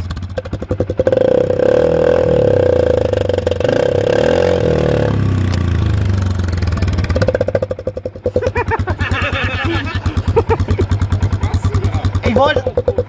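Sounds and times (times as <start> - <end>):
quad engine running: 0.0 - 13.0.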